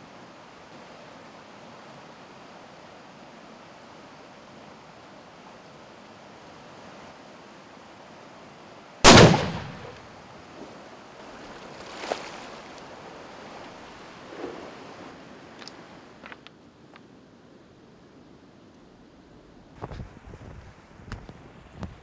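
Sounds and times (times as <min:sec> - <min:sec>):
river water rushing: 0:00.1 - 0:16.2
rifle shot: 0:09.0 - 0:10.1.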